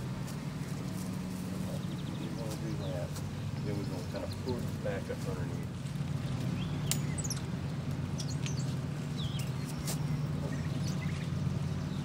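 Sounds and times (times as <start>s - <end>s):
sharp clicks: 6.8s - 7.5s.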